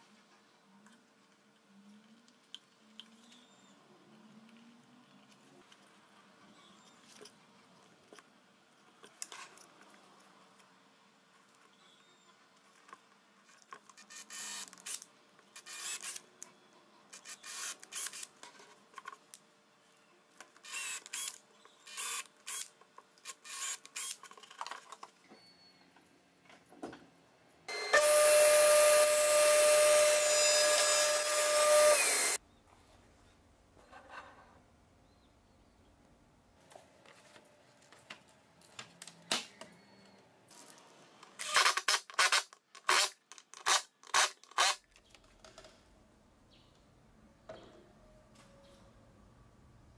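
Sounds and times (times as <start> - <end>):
drill driving screws into wood: 15.6 - 16.2, 17.2 - 18.3, 20.6 - 22.7, 23.3 - 24.2, 27.7 - 32.4, 41.4 - 44.8
power tool motor whining: 27.7 - 32.4.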